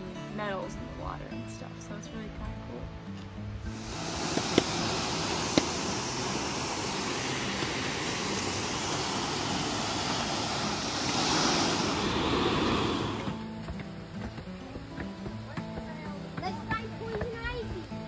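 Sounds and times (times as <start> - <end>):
waterfall rushing: 3.7 - 14.9.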